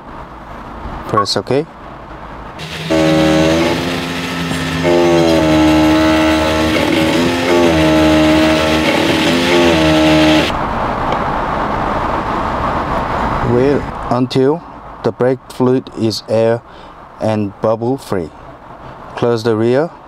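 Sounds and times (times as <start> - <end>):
electric pump motor whining: 2.6 - 10.5.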